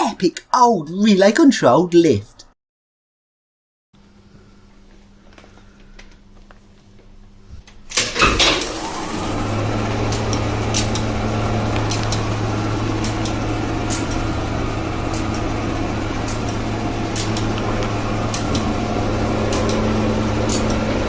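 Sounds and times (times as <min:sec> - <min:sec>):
hoist motor humming: 0:07.9 - 0:21.0
relay clicks: 0:10.0 - 0:12.4, 0:16.2 - 0:18.8, 0:19.4 - 0:20.9.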